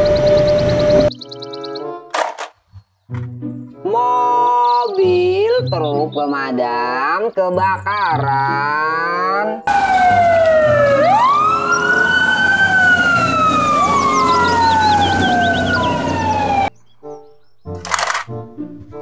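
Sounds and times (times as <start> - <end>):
fire engine siren wailing: 0.0 - 1.2, 9.7 - 16.8
engine rumble: 9.7 - 16.9.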